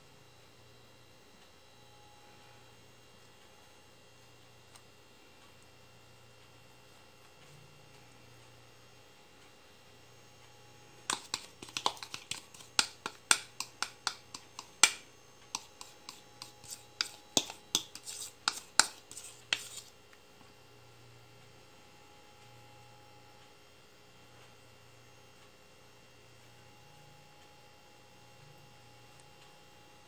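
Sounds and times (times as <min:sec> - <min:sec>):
utensil clicking against dish: 0:11.1 - 0:19.8.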